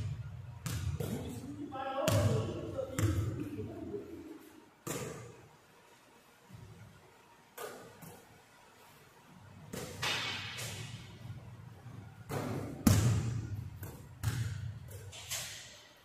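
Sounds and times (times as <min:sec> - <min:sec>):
basketball bouncing on hardwood floor: 0:12.3 - 0:15.0.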